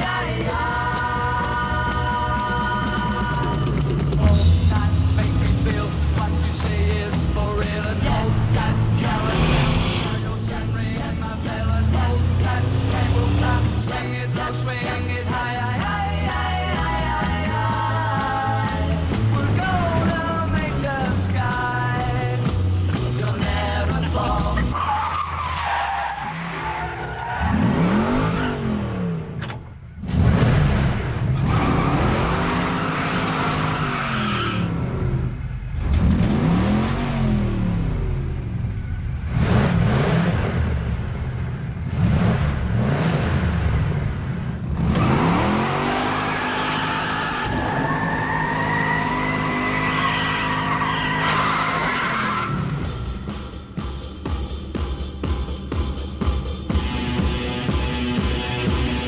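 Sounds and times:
rock song with singing: 0.0s - 24.8s
car engine surging: 3.1s - 59.0s
tyres screeching: 4.7s - 14.2s, 23.3s - 29.7s, 31.4s - 35.0s, 44.9s - 54.0s.

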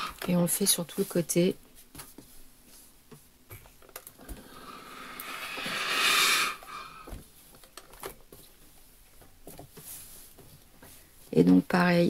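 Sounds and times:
steam iron hissing: 4.5s - 7.0s.

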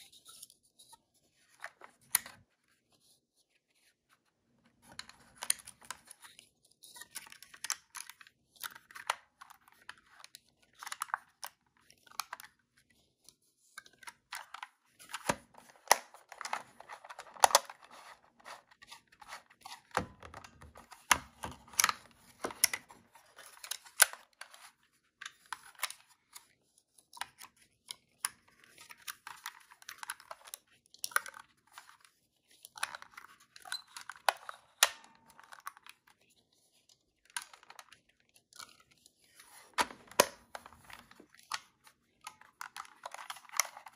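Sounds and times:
film and plastic rustling: 13.7s - 26.6s, 28.3s - 43.9s.

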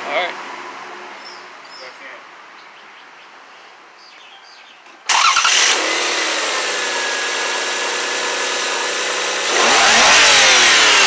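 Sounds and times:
car engine starting and idling: 5.1s - 11.0s
engine revving: 5.1s - 11.0s.

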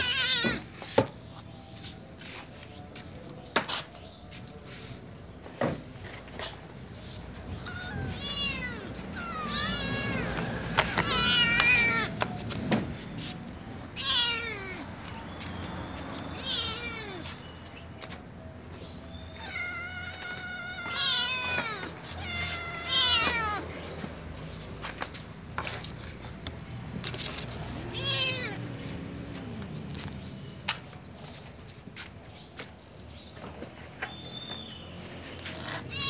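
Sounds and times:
young cats meowing: 0.0s - 0.8s, 7.0s - 12.5s, 13.8s - 15.2s, 16.2s - 17.5s, 19.2s - 24.0s, 27.2s - 28.7s, 35.4s - 36.0s.

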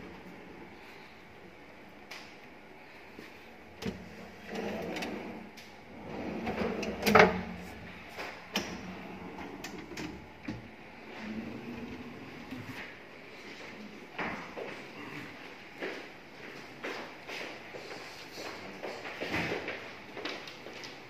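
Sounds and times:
wire shelves sliding on metal runners: 3.8s - 12.8s.

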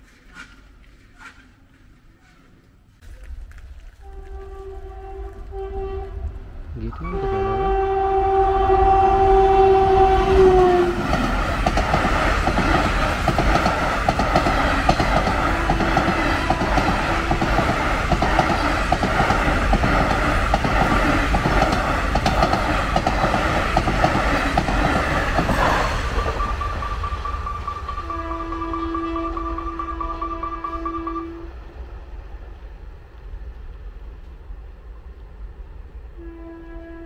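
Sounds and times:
train horn: 4.0s - 11.1s, 15.3s - 17.4s, 27.8s - 31.8s, 36.1s - 37.0s
train wheels clickety-clack: 10.8s - 31.2s.

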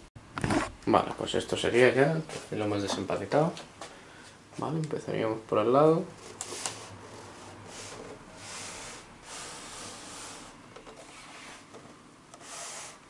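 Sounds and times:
rubbing and brushing of plastic part: 6.3s - 13.0s.

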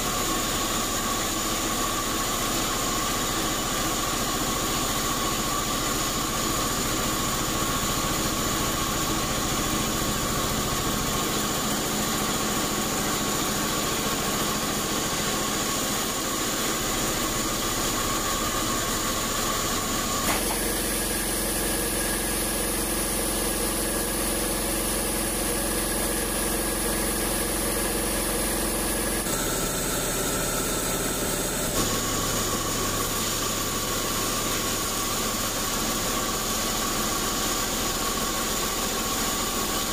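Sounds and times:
band saw cutting log: 20.0s - 35.0s.

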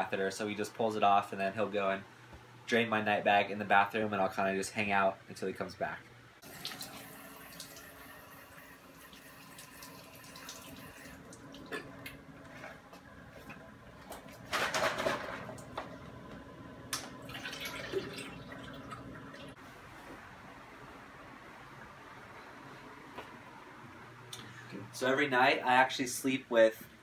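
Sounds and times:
steady low hum: 0.0s - 27.0s
liquid trickling into toilet water: 9.0s - 12.1s, 17.0s - 19.6s.

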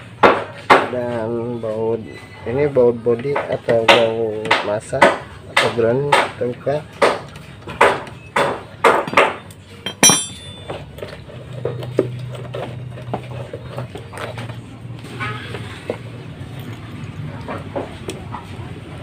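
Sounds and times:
knocks and handling sounds: 9.0s - 13.3s
ringing metallic clink: 9.8s - 10.8s
socket wrench metal clanks: 9.8s - 10.8s.

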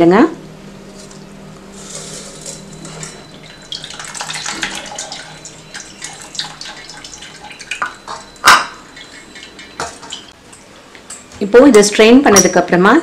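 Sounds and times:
water draining and dripping: 3.3s - 10.3s.

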